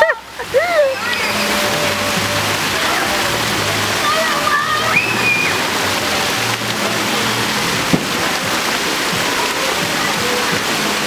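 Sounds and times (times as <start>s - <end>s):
water splashing in pool: 0.0s - 11.0s
child calling: 0.7s - 1.6s, 4.0s - 5.6s.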